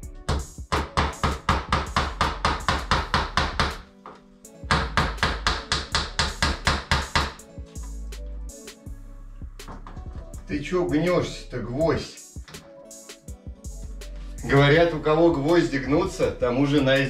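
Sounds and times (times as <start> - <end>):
background music: 0.0 - 17.0
hammer tapping a nail: 0.3 - 3.8, 4.7 - 7.4.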